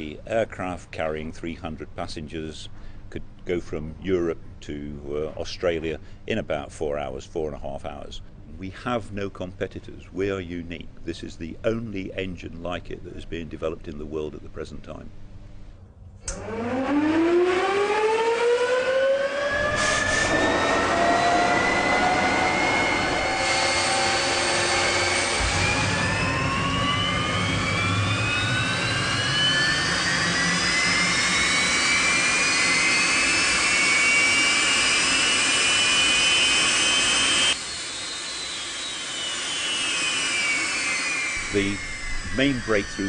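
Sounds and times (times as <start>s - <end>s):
jet engine whine: 15.6s - 43.0s
rushing air: 19.6s - 27.1s.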